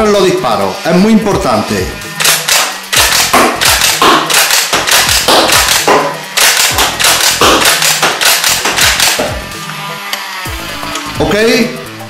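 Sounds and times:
toy blaster firing darts: 2.2 - 9.4.

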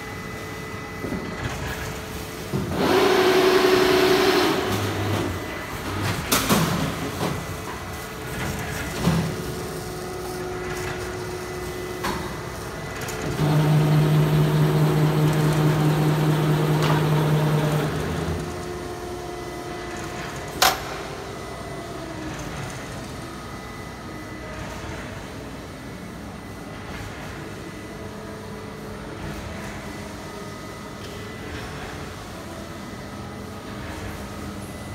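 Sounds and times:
machine hum: 2.7 - 6.3, 12.7 - 20.3
motor drone: 13.2 - 18.6.

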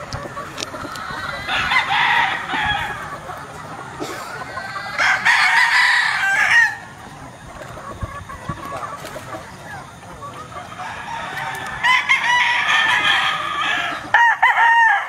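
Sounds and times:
rooster crowing: 1.0 - 3.0, 4.6 - 6.9, 10.8 - 15.0.

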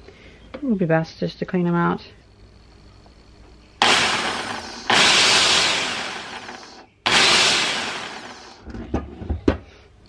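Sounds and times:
compressed air hissing blasts: 3.8 - 8.6.

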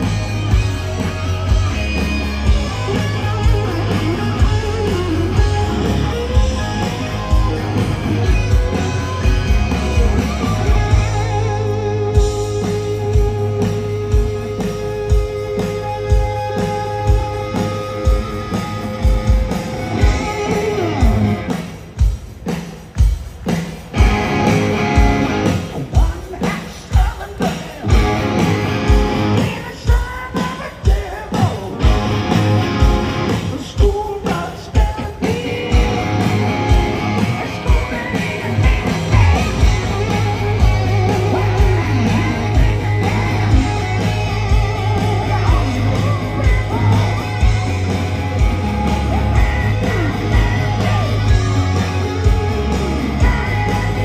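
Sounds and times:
bass: 0.0 - 54.0
electric guitar solo: 0.1 - 21.5
drum beat: 12.2 - 54.0
person singing: 33.4 - 47.6, 48.5 - 54.0.

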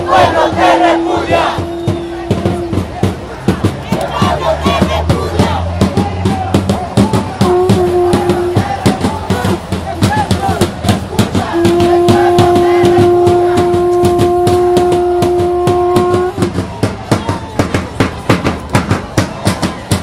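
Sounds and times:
horn long steady note: 0.0 - 2.8, 7.4 - 9.7, 11.4 - 16.6
fast drumming: 0.0 - 20.0.

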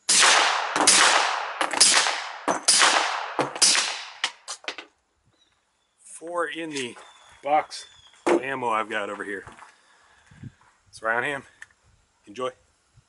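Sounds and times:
suppressed pistol shots: 0.1 - 4.6.

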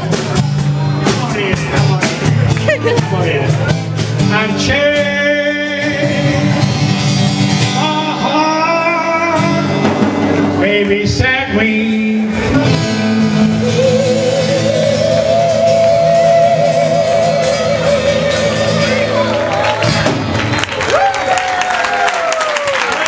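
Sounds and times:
drums: 0.0 - 23.0
guitar: 0.0 - 23.0
man singing into a microphone: 4.2 - 19.4.

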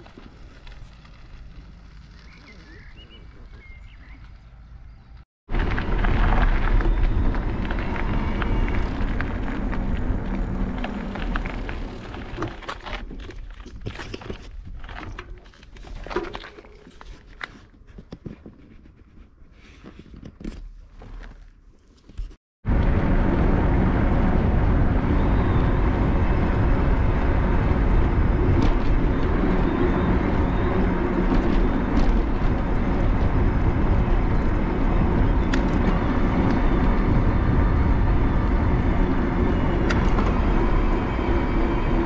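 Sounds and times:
wind buffeting microphone: 22.7 - 42.0.

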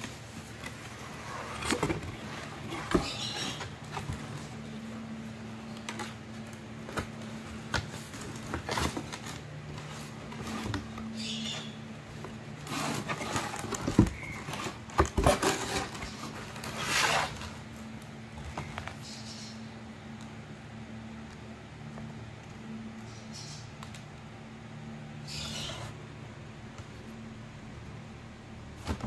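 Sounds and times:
cardboard rustling and sliding: 0.0 - 19.0.

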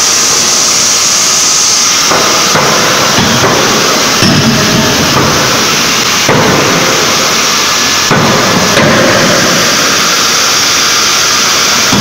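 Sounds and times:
loud machinery hiss: 0.0 - 12.0
forging hammer striking metal: 2.0 - 9.8.

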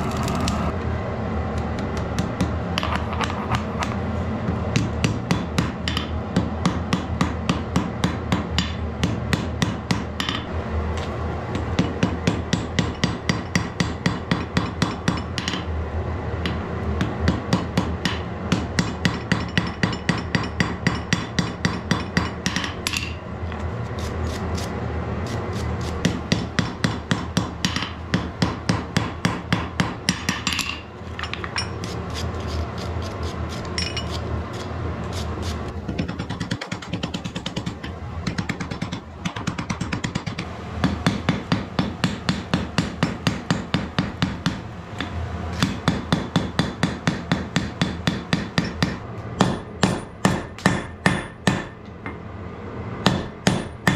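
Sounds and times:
hammer striking metal on anvil: 4.7 - 10.5, 16.4 - 23.2, 26.0 - 31.8, 36.0 - 52.2, 53.0 - 53.9.

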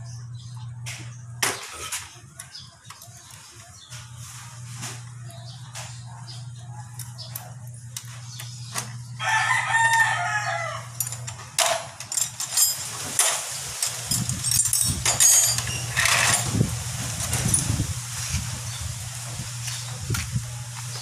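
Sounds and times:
rooster crowing: 9.2 - 11.0.

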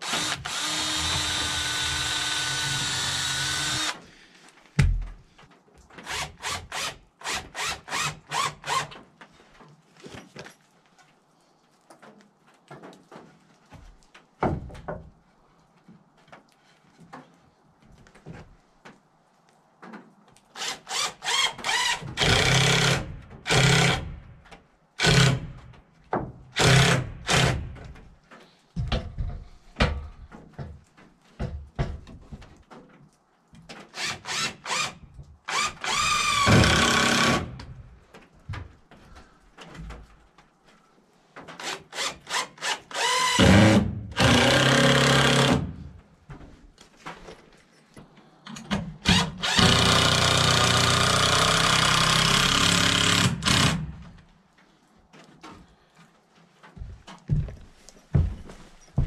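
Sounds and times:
cordless drill driving screws: 0.0 - 4.1, 6.0 - 9.0, 20.6 - 24.1, 26.6 - 27.6, 33.9 - 37.5, 41.6 - 45.7, 49.0 - 54.0.

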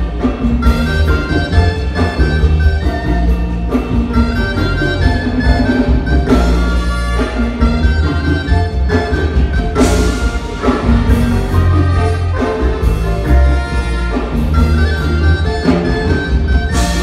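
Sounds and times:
brass: 0.0 - 17.0
latin percussion: 0.0 - 17.0
marimba: 0.0 - 17.0
pulsing bass: 0.0 - 17.0
saxophones: 0.0 - 17.0.

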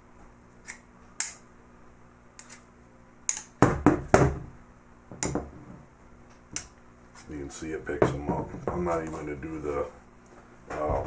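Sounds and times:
knocks on a tabletop: 3.6 - 4.5.

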